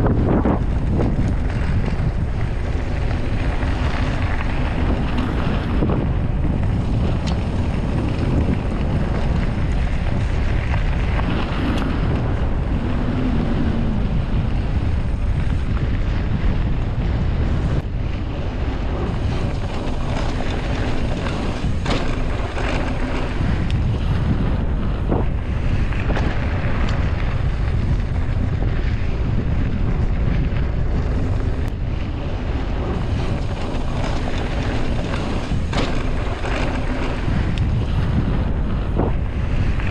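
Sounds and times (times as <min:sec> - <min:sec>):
bike rumbling on rough trail: 0:00.0 - 0:39.9
wind buffeting microphone: 0:00.0 - 0:39.9.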